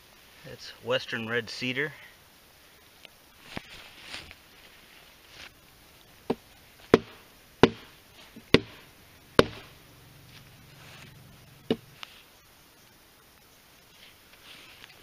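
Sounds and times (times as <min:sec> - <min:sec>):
hatchet chopping into log: 0:06.3 - 0:07.9, 0:08.5 - 0:08.8, 0:09.4 - 0:09.7.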